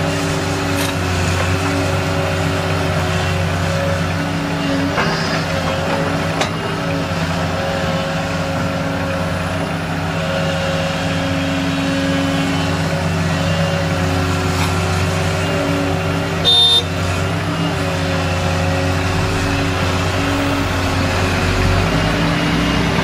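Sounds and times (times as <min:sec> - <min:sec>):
excavator diesel engine running: 0:00.0 - 0:23.0.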